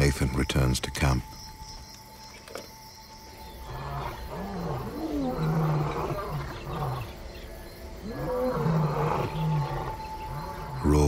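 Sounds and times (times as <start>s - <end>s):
lions roaring and grunting: 3.6s - 11.0s.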